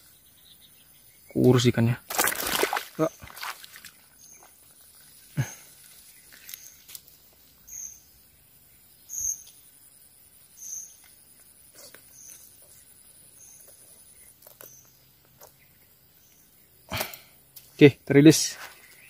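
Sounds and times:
bird chirping: 0.0s - 1.9s, 3.9s - 17.2s.

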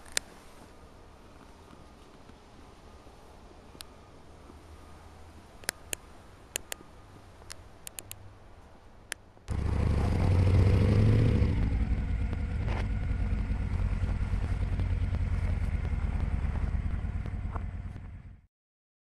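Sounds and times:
motorcycle engine running: 9.5s - 18.5s.

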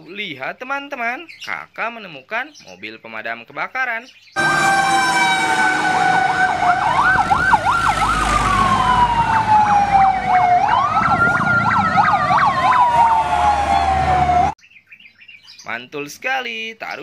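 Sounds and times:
steady horn-like tone: 4.4s - 8.6s
fire engine sirens yelping and wailing: 4.4s - 14.6s.

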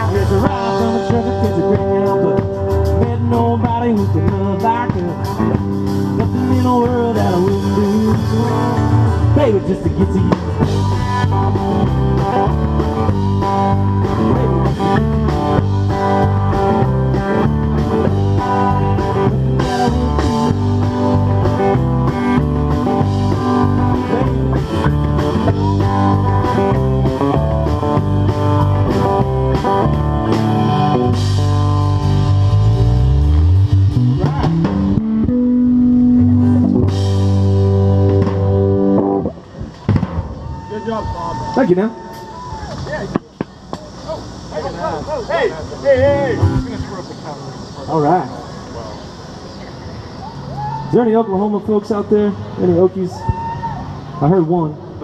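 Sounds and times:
sliding guitar notes: 0.0s - 39.6s, 46.0s - 47.0s
blues-rock band playing: 0.0s - 42.8s, 46.0s - 47.1s.

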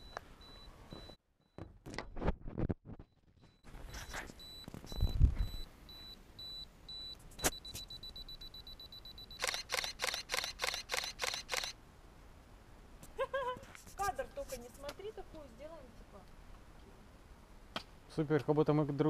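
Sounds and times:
camera self-timer beeping: 3.5s - 11.8s
camera shutter burst: 9.4s - 11.8s.

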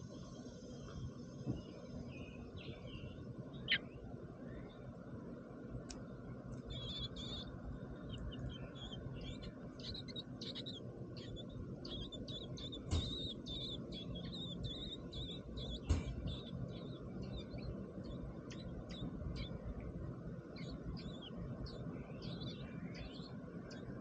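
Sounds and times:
nestlings begging with high chirps: 0.0s - 24.0s
sharp knocks: 12.8s - 13.4s, 15.8s - 16.5s.

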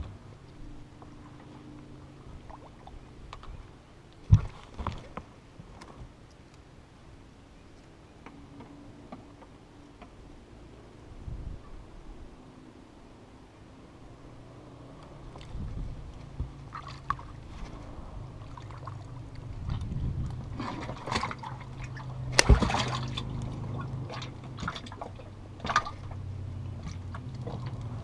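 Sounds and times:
low steady hum: 0.0s - 28.0s
water splashing and trickling: 0.4s - 5.4s, 15.0s - 28.0s
knocks and thumps on boat: 4.3s - 5.3s, 19.6s - 26.2s.

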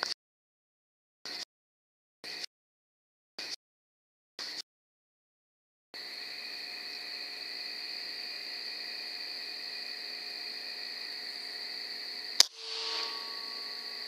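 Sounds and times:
crickets trilling: 6.0s - 14.0s.

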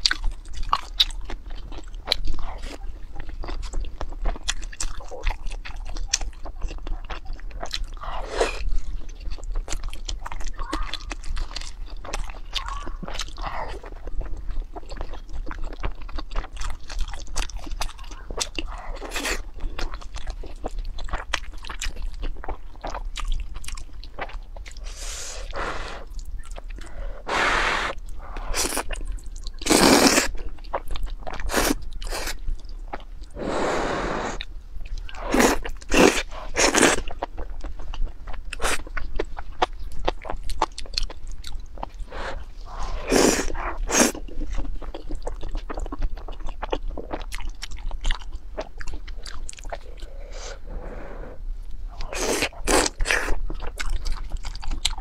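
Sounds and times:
wet chewing and mouth clicks: 0.0s - 33.4s, 34.3s - 50.6s, 51.6s - 55.0s
loud slurping of noodles: 24.8s - 26.1s, 27.2s - 28.8s, 33.4s - 34.4s, 42.1s - 44.1s.

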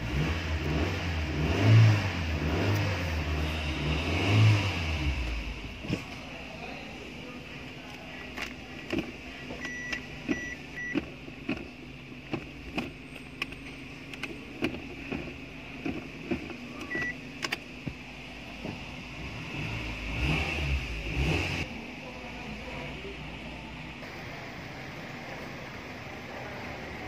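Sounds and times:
engine idling: 2.1s - 27.0s
gear selector clicking: 8.2s - 18.0s.

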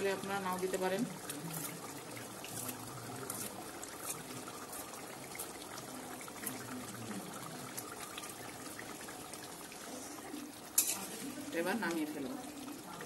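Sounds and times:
curry bubbling in a pan: 0.0s - 13.0s.

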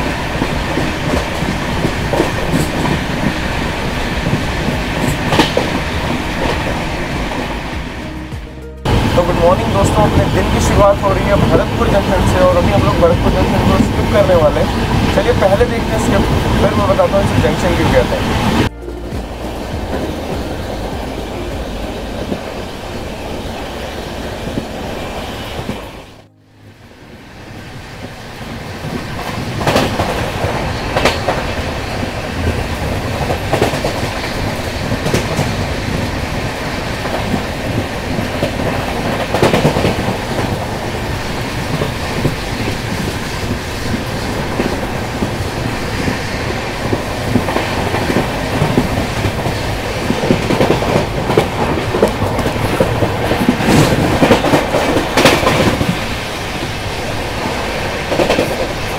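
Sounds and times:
train wheels clattering: 0.0s - 7.9s, 28.5s - 58.9s.

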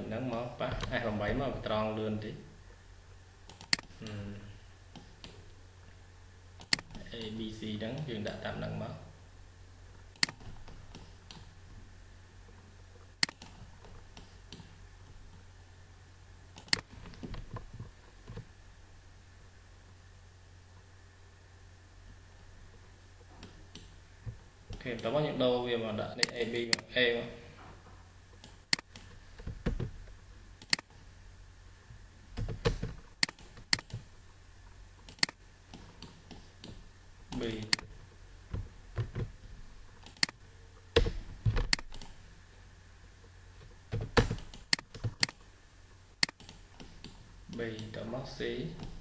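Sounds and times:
low steady hum: 0.0s - 49.0s
mouse and keyboard clicks: 3.5s - 4.2s, 13.2s - 13.6s, 32.4s - 34.0s, 35.1s - 36.8s, 46.2s - 47.2s.

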